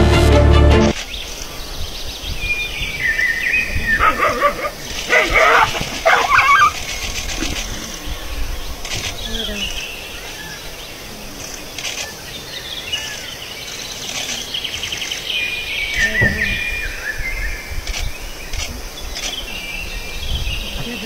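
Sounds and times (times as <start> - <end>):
birds chirping and trilling: 0.9 - 21.0
insect hum: 1.0 - 21.0
low gliding cry: 3.4 - 11.4.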